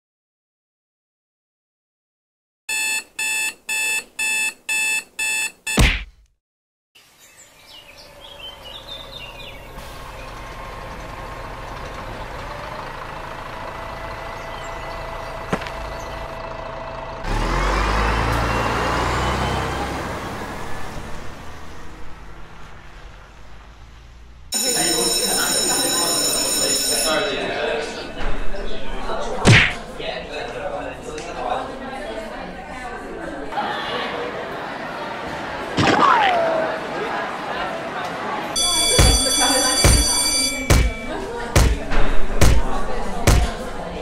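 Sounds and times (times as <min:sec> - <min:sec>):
alarm clock beeping: 0:02.7 - 0:05.9, 0:24.6 - 0:27.9, 0:38.6 - 0:41.8
thump: 0:05.8 - 0:06.2
road traffic noise: 0:07.7 - 0:33.6, 0:34.3 - 0:44.0
vehicle passing: 0:08.6 - 0:24.5.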